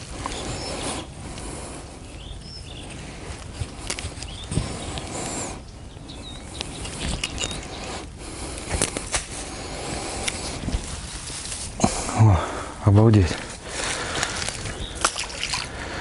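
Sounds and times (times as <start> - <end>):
fishing net rustling: 10.3 - 11.8, 13.6 - 15.8.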